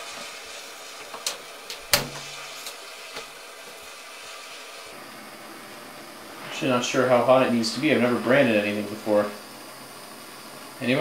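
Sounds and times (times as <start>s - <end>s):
blowtorch flame hissing: 0.0s - 11.0s.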